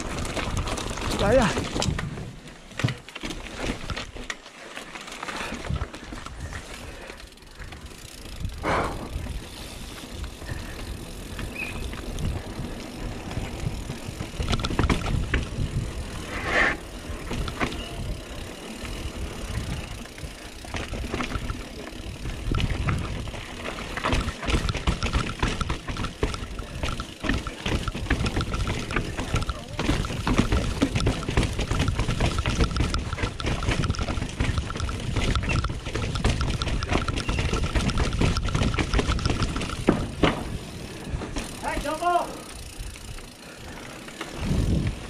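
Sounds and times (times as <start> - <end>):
mountain bike rumbling over rocks: 0.0 - 45.0.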